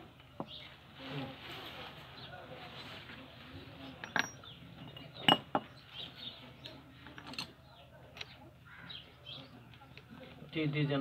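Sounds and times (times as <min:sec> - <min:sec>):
metallic clicks and clinks: 0:06.6 - 0:07.6.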